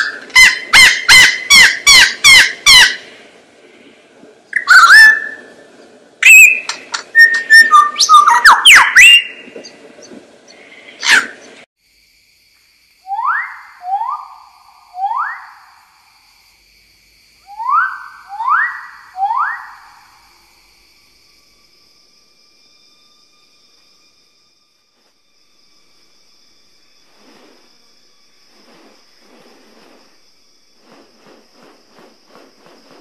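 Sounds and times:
bird rising whistled notes: 0:04.5 - 0:05.5, 0:06.2 - 0:09.5, 0:13.0 - 0:15.8, 0:17.4 - 0:21.8
lyrebird song: 0:04.5 - 0:11.6.

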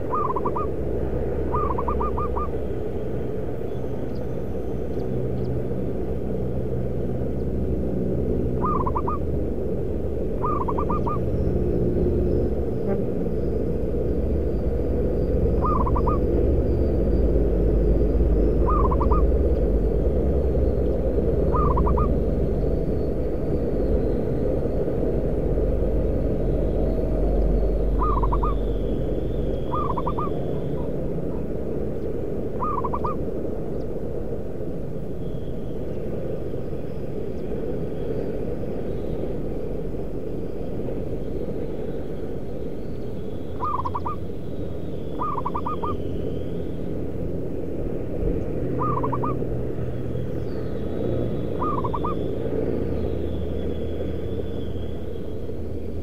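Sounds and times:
low rumble: 0:00.0 - 0:42.8
dove cooing: 0:00.1 - 0:00.8, 0:01.5 - 0:02.6, 0:08.5 - 0:09.3, 0:10.4 - 0:11.4, 0:15.6 - 0:16.3, 0:18.6 - 0:19.4, 0:21.5 - 0:22.1, 0:28.0 - 0:28.6, 0:29.6 - 0:31.5, 0:32.6 - 0:33.2, 0:43.6 - 0:44.2, 0:45.2 - 0:46.0, 0:48.8 - 0:49.4, 0:51.6 - 0:52.2.

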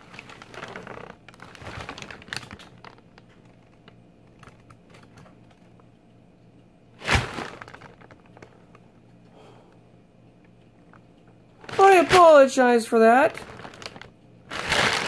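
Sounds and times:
paper crinkling: 0:00.0 - 0:05.1, 0:07.0 - 0:08.6, 0:11.6 - 0:15.0.

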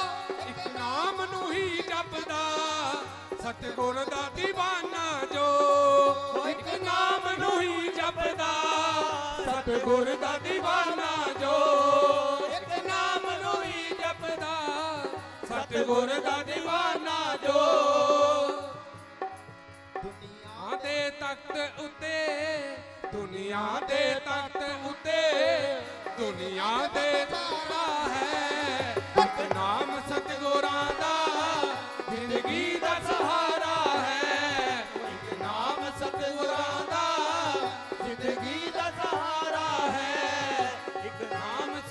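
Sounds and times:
people singing: 0:00.0 - 0:19.0, 0:23.1 - 0:41.9
harmonium: 0:00.0 - 0:41.9
hand drum rhythm: 0:25.6 - 0:41.9.

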